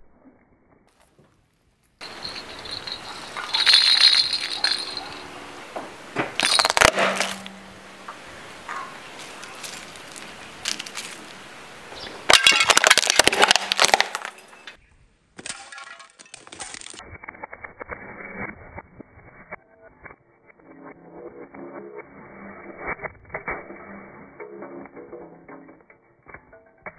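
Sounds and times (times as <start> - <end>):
plastic pieces clattering: 2.0 - 5.3, 6.4 - 7.5, 9.2 - 11.3, 12.3 - 14.5, 15.4 - 17.0
plastic rattle rattling: 2.0 - 5.3, 6.4 - 7.5, 12.3 - 14.4
plastic crunching under tyre: 9.1 - 11.4, 12.3 - 14.6.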